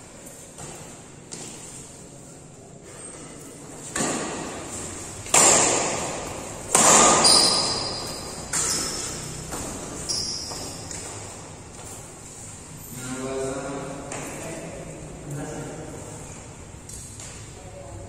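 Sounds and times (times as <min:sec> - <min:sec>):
rackets hitting shuttlecock: 0:05.2 - 0:10.0
shoe squeaks: 0:06.9 - 0:13.1.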